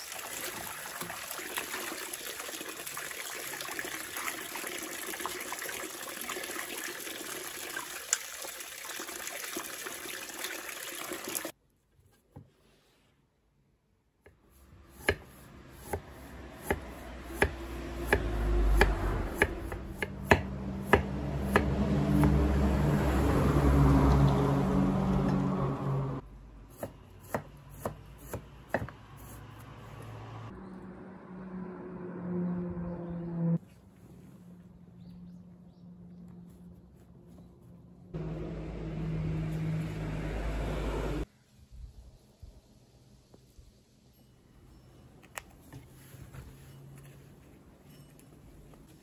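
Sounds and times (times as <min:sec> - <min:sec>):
hose water splashing into basin: 0:00.0 - 0:11.6
knife chopping on wooden board: 0:14.3 - 0:22.4, 0:26.7 - 0:29.0.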